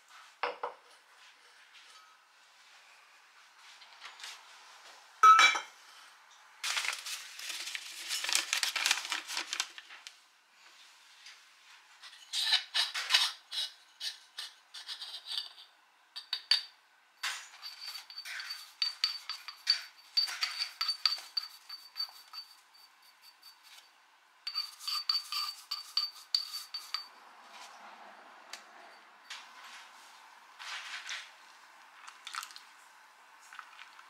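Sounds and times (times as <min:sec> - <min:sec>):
rustling and scraping: 0:06.6 - 0:13.3, 0:29.3 - 0:31.4
dishes and utensils clicking: 0:16.2 - 0:23.6.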